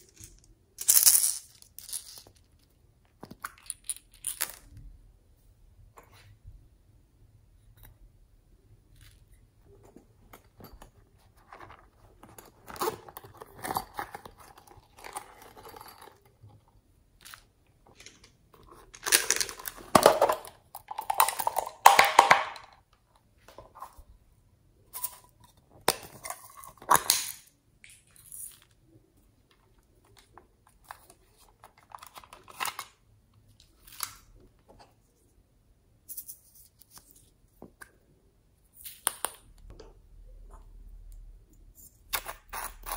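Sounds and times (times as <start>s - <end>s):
plastic cups clicking: 17.2s - 22.8s.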